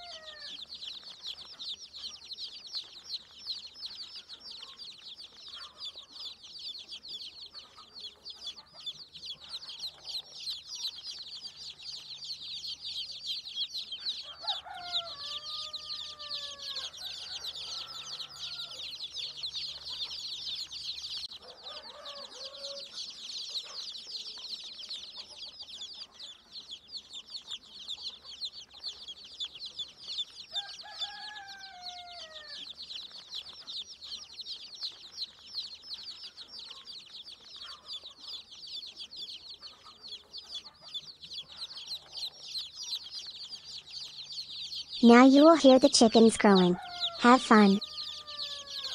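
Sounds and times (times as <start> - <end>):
rooster crowing: 0.0 - 0.6, 14.2 - 19.1, 21.3 - 23.1, 30.5 - 32.7, 46.5 - 48.9
adult chicken call: 0.0 - 0.7, 14.2 - 18.9, 21.4 - 23.0, 30.5 - 32.8, 45.4 - 48.9
chicks peeping: 0.0 - 48.9.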